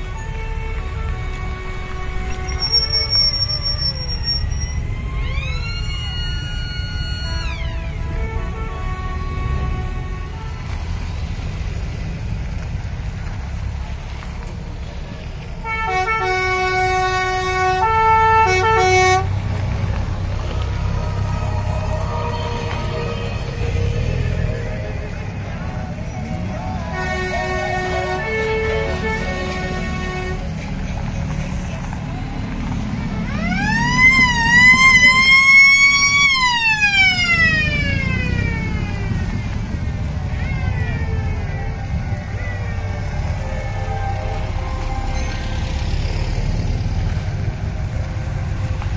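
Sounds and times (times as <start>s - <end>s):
musical vehicle horn tune: 0.0s - 5.0s, 6.9s - 11.3s, 15.6s - 19.4s, 20.8s - 25.3s, 26.0s - 30.6s
siren wailing: 0.8s - 9.0s, 20.4s - 28.5s, 33.1s - 46.4s.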